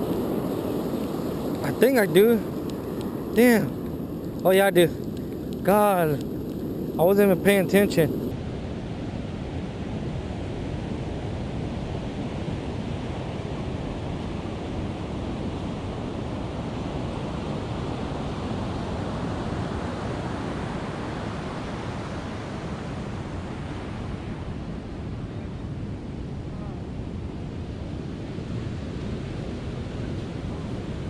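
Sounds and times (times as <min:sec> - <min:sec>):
ocean surf breaking: 0:00.0 - 0:08.4.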